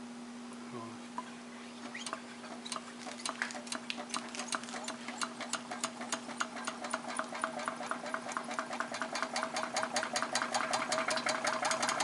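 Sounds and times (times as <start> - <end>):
steady low hum: 0.0 - 7.8.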